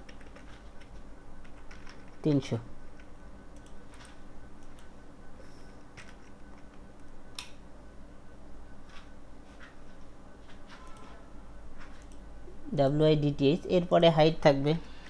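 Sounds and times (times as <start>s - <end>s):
low steady hum: 0.0s - 15.0s
computer mouse clicks: 3.0s - 4.9s, 11.8s - 12.2s.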